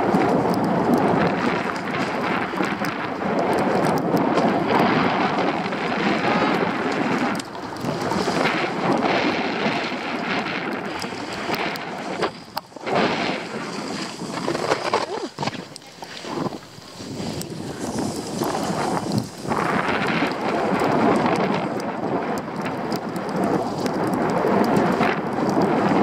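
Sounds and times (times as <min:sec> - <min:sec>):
skis scraping over snow: 0:00.0 - 0:26.0
wind on microphone: 0:00.0 - 0:26.0.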